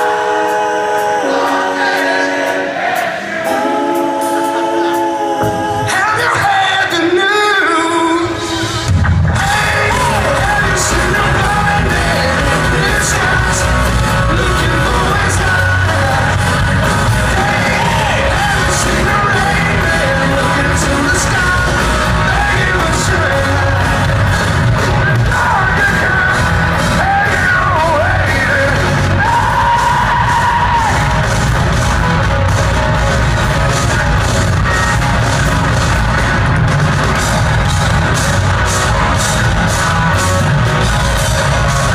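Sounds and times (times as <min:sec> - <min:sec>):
person singing lead vocal: 0:00.0 - 0:31.4
drums: 0:00.0 - 0:41.9
electric guitars: 0:03.3 - 0:41.9.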